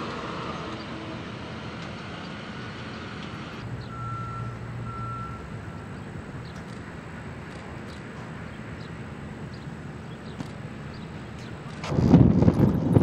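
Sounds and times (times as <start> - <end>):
low engine hum: 0.0 - 13.0
outdoor machinery noise: 0.0 - 13.0
traffic noise: 0.0 - 13.0
backup alarm beeping: 3.8 - 6.0.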